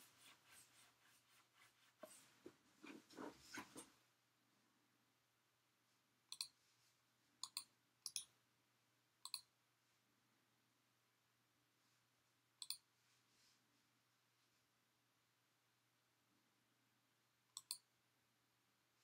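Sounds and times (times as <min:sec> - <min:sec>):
computer mouse clicks: 0:06.3 - 0:06.6, 0:07.4 - 0:08.3, 0:09.3 - 0:09.5, 0:12.6 - 0:12.9, 0:17.6 - 0:17.9.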